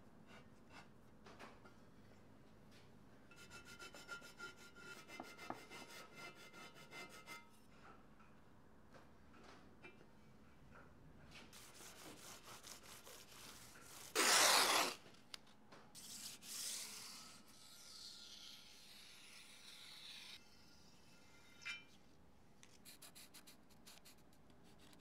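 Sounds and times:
masking tape ripping: 0:14.1 - 0:15.0.

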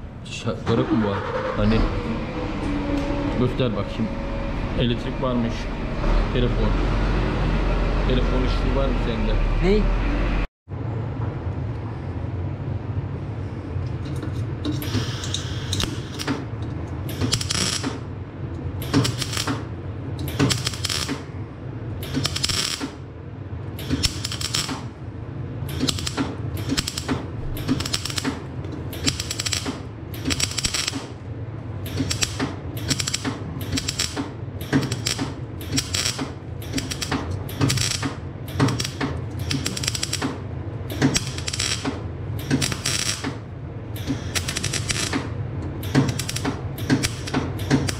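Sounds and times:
steady low hum: 0:00.0 - 0:47.9
welding arc crackling: 0:17.1 - 0:18.0, 0:18.8 - 0:19.6, 0:20.3 - 0:21.3, 0:22.0 - 0:23.0, 0:23.8 - 0:24.9, 0:25.7 - 0:31.1, 0:31.8 - 0:40.3, 0:40.9 - 0:43.4, 0:44.0 - 0:45.2, 0:45.8 - 0:47.9.

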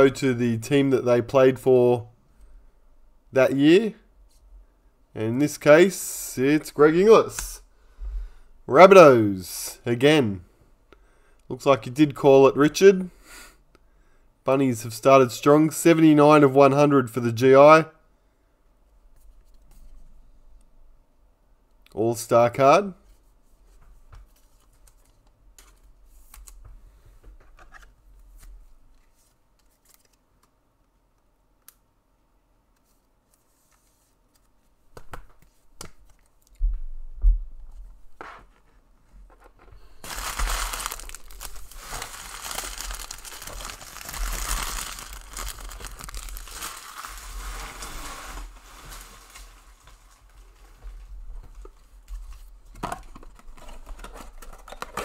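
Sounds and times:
trading cards handled: 0:27.4 - 0:30.5, 0:39.3 - 0:47.2
packaging torn and crinkled: 0:40.0 - 0:50.0.

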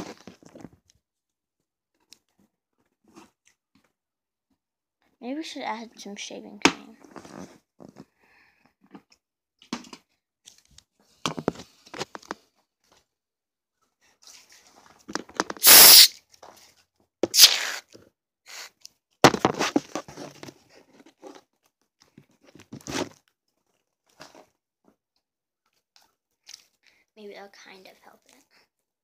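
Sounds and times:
aerosol can hissing bursts: 0:15.6 - 0:16.1, 0:17.2 - 0:17.9.

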